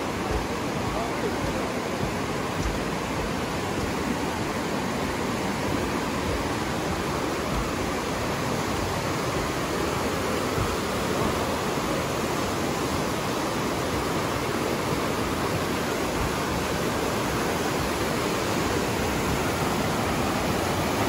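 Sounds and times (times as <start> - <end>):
river rushing through gorge: 0.0 - 21.0.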